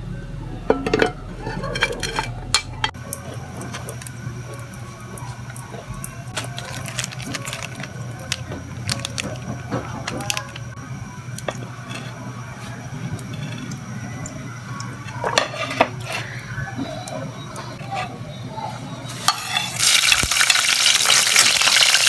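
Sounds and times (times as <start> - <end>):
shells clattering in a pot: 0.8 - 4.0, 6.4 - 10.7, 19.2 - 22.0
plastic packet crinkling: 6.4 - 10.7.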